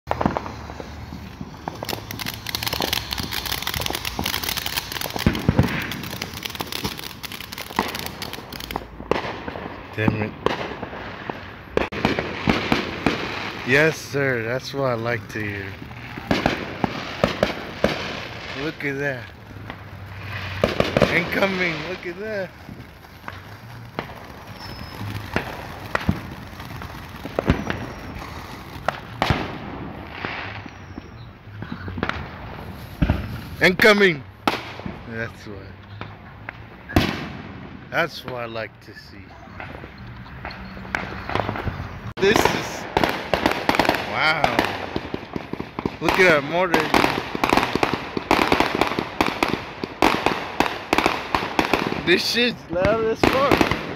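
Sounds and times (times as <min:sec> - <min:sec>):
firework fountain hissing and crackling: 0:00.1 - 0:53.9.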